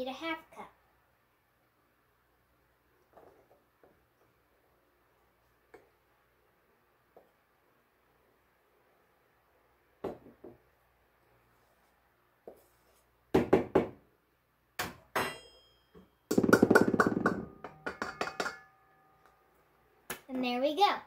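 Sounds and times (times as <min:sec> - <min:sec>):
cup tapping on metal bowl: 0:16.3 - 0:18.8.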